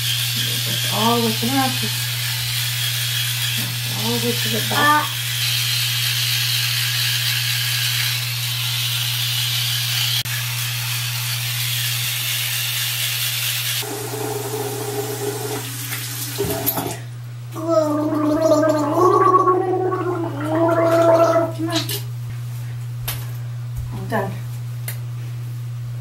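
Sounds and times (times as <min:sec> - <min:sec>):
toothbrush scrubbing: 0:00.0 - 0:08.3, 0:17.6 - 0:22.0
water running from tap: 0:00.0 - 0:10.3, 0:11.5 - 0:22.2
steady low hum: 0:16.9 - 0:26.0.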